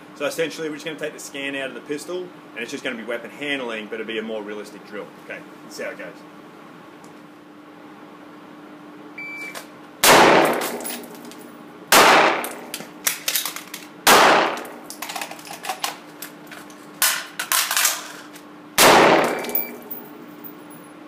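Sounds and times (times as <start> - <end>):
gunshots echoing indoors: 10.0 - 11.1, 12.0 - 12.7, 14.1 - 14.8, 18.8 - 20.0
metallic gun clicks and clatter: 12.5 - 13.9, 14.5 - 18.4, 19.2 - 20.0.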